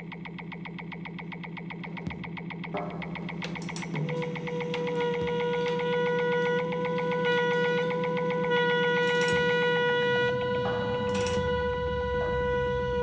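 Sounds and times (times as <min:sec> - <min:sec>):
wind instrument long note: 0:03.8 - 0:13.0.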